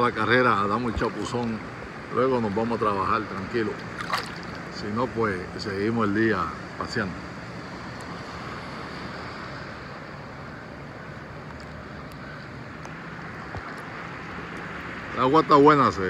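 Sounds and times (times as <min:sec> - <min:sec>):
sea water lapping: 0:00.0 - 0:05.6.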